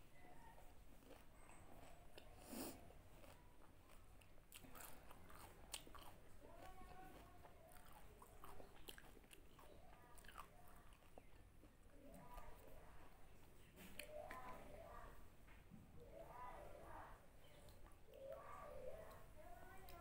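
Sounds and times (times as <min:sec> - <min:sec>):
crisp food crunching while chewing: 0:00.9 - 0:12.5.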